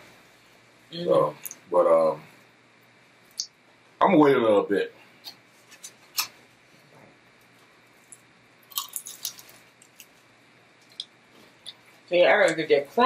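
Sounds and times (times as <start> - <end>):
crunchy chewing: 7.4 - 12.0.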